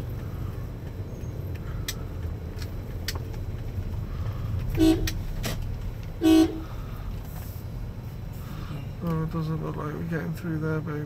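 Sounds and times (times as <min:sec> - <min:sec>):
engine and road noise in car: 0:00.0 - 0:11.0
car horn toots: 0:04.7 - 0:05.2, 0:06.2 - 0:06.7.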